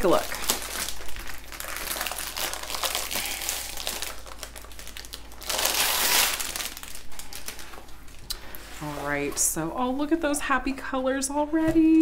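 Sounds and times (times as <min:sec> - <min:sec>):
plastic sleeve crinkling: 0:00.0 - 0:09.0.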